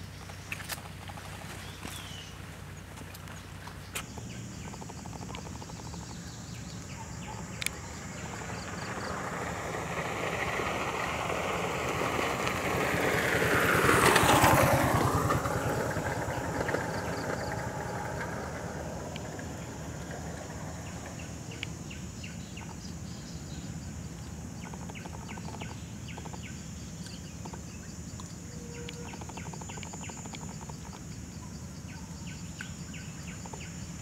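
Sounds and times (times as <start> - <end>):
motorbike driving past: 5.3 - 22.7.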